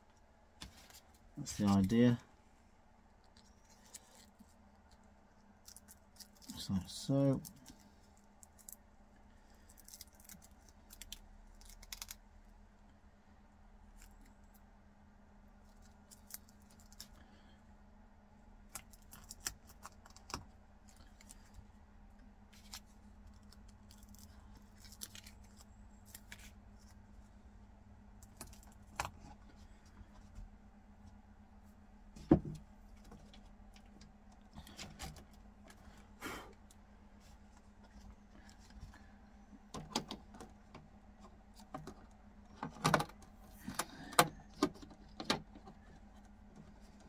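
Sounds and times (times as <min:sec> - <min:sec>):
low steady hum: 0:00.0 - 0:47.0
velcro peeled from backing paper: 0:22.6 - 0:27.0.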